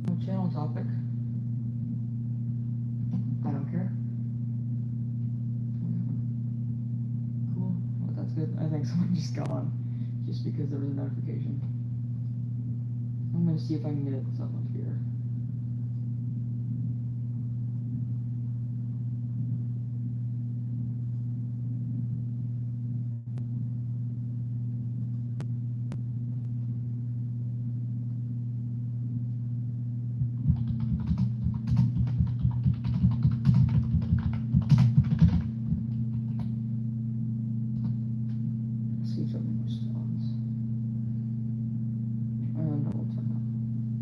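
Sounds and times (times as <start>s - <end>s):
low electrical hum: 0.0s - 44.0s
computer keyboard typing: 30.3s - 36.5s.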